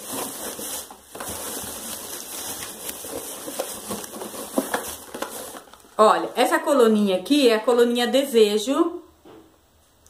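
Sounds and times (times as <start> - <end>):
plastic bag crinkling: 0.0 - 6.7.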